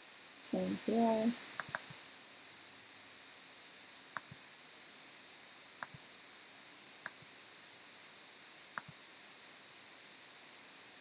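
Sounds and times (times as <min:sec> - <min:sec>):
faint steady hiss: 0:00.0 - 0:11.0
computer mouse clicks: 0:01.6 - 0:02.0, 0:04.1 - 0:04.4, 0:05.8 - 0:06.0, 0:07.0 - 0:07.2, 0:08.7 - 0:09.0.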